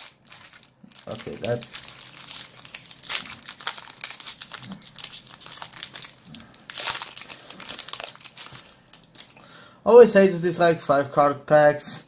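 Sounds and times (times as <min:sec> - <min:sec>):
foil wrapper crinkling and tearing: 0:00.0 - 0:09.4.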